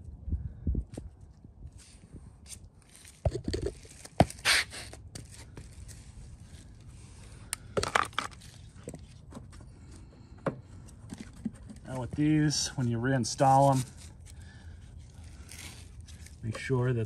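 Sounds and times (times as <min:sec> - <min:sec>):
rustling scrape: 0:11.0 - 0:17.0.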